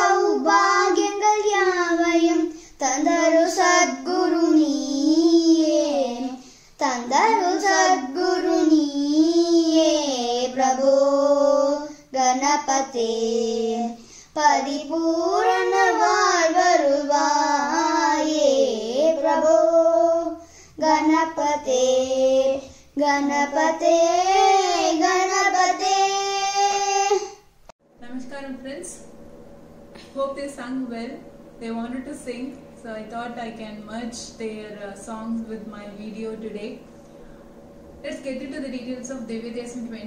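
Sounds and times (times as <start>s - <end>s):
child singing: 0.0s - 27.4s.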